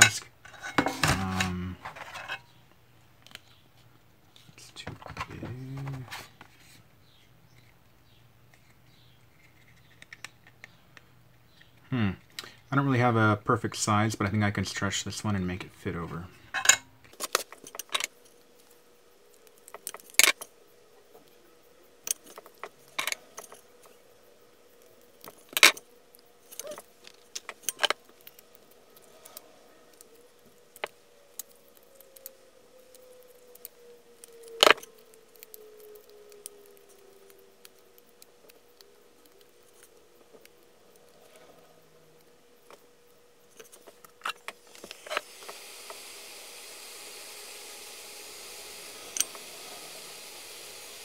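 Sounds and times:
clicks and clinks of handling: 0:16.6 - 0:18.7, 0:22.0 - 0:24.0, 0:24.7 - 0:32.3.

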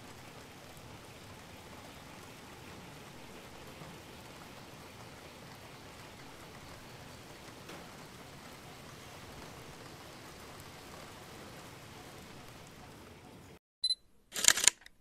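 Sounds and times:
short high beep: 0:13.8 - 0:14.0.

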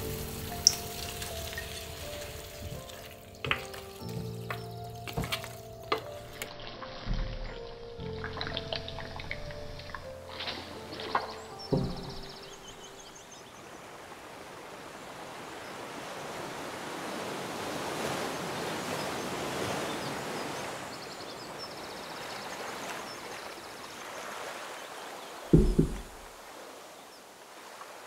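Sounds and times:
waves washing onto shore: 0:00.0 - 0:07.6, 0:08.3 - 0:28.0
plate thud on wooden table: 0:25.6 - 0:26.3.

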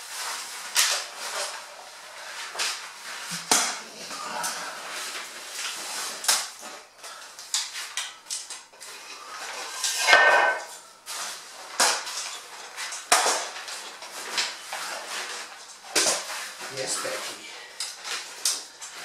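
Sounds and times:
metal poles knocking and clattering: 0:09.8 - 0:10.8
scraping ringing metal rattle: 0:09.9 - 0:10.8.

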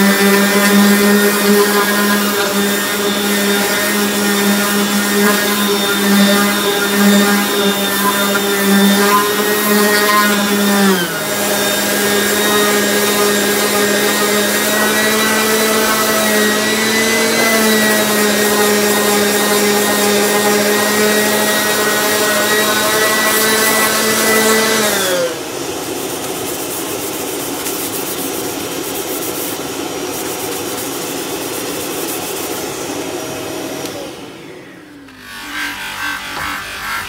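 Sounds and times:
power sander whining: 0:00.0 - 0:26.0.

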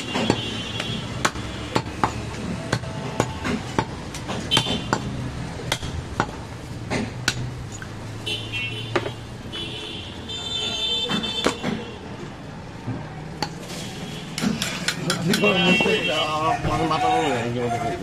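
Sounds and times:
cleaver chopping on wooden block: 0:00.0 - 0:07.5.

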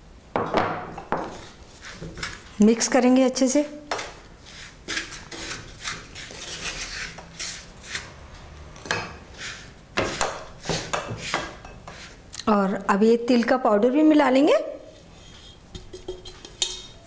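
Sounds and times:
wooden spatula scraping a pan: 0:01.1 - 0:02.8, 0:04.0 - 0:12.3, 0:14.9 - 0:16.7.

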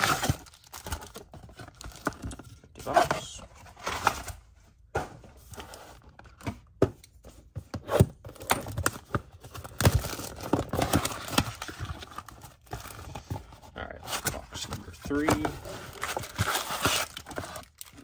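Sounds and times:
cardboard flaps rustling and tearing: 0:07.8 - 0:18.0.

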